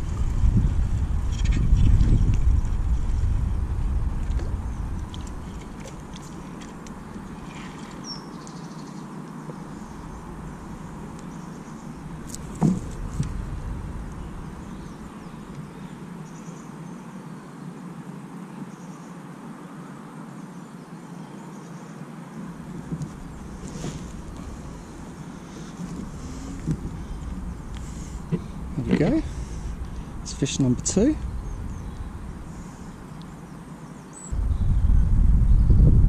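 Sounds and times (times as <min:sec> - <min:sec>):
wind buffeting microphone: 0:00.0 - 0:08.2, 0:09.5 - 0:16.2, 0:22.5 - 0:36.0
sharp thump: 0:12.4 - 0:13.4.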